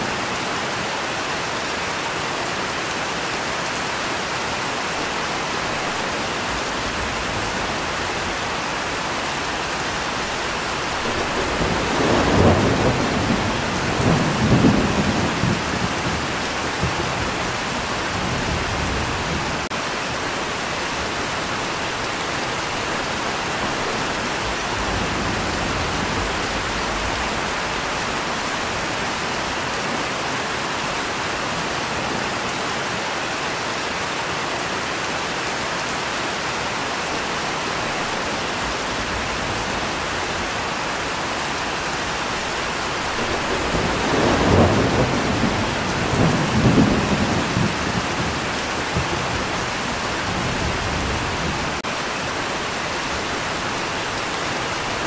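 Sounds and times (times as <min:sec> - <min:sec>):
steady rain falling: 0:00.0 - 0:55.0
thunder rumbling: 0:05.5 - 0:19.7, 0:37.8 - 0:51.9.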